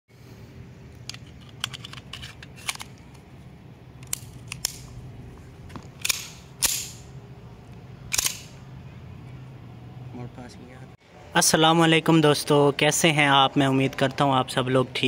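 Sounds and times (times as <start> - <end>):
pistol metallic clicks: 4.0 - 5.0, 6.0 - 7.1, 8.1 - 8.6
pistol slide clacks: 6.0 - 7.0, 8.1 - 8.6.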